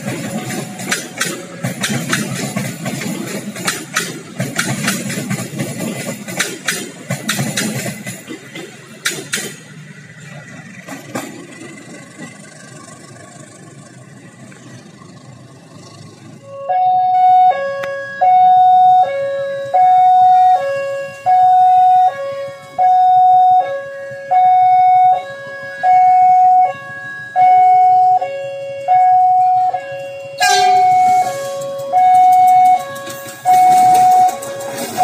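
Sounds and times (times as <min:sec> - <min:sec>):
level crossing two-tone alarm: 0:16.4 - 0:35.0.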